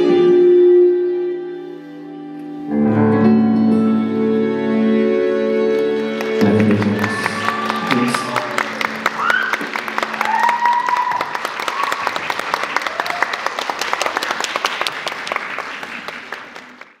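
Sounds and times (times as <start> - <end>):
audience applauding: 5.7 - 17.0
high shouts: 6.8 - 13.4.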